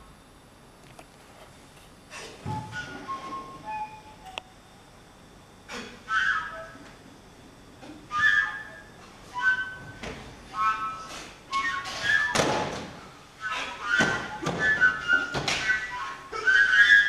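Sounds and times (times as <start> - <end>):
short whistled notes: 2.5 - 4.2, 5.8 - 6.9, 8.1 - 17.0.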